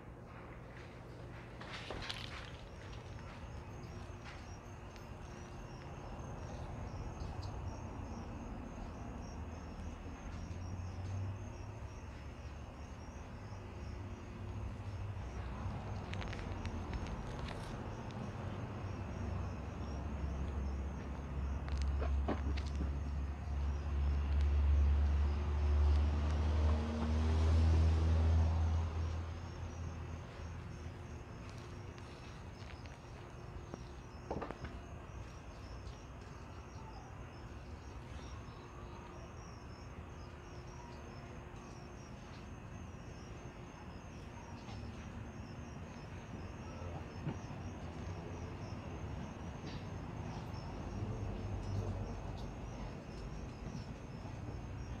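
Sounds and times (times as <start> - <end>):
vehicle engine rumble: 0.0 - 43.5
crickets chirping: 0.0 - 55.0.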